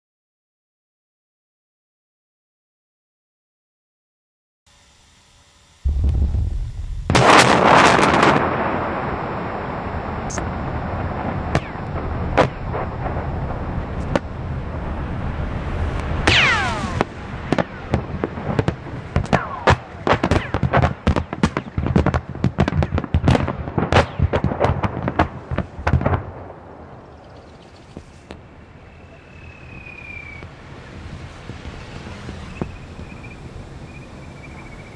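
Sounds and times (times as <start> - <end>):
sharp cracks and bangs: 5.9 - 9.3, 11.2 - 14.4, 15.8 - 26.8
wind on microphone: 5.9 - 20.7, 21.8 - 34.9
large explosion rumble: 5.9 - 27.4
falling whistles: 28.8 - 30.5, 31.7 - 34.9.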